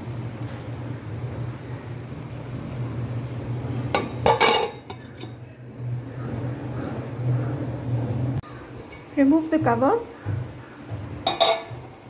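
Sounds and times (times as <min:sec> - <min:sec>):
steady low hum: 0:00.0 - 0:12.0
pot lid clanking on metal: 0:03.9 - 0:05.4, 0:11.2 - 0:12.0.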